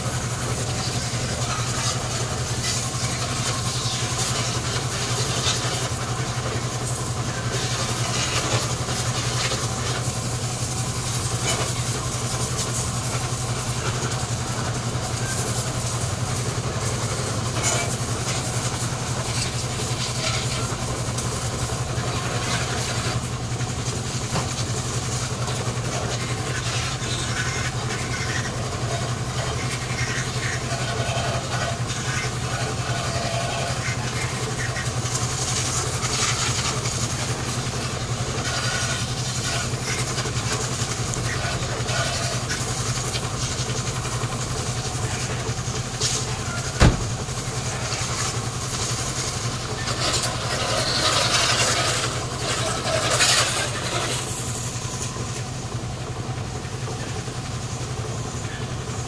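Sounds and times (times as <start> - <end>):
engine idling: 0.0 - 59.0
hose water splashing on van: 0.0 - 59.0.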